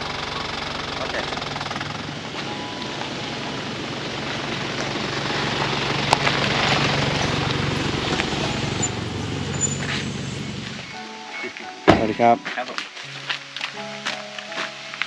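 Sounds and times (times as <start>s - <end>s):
pickup truck engine running: 0.0s - 11.0s
tyres crunching on dirt road: 0.0s - 11.0s, 11.6s - 15.0s.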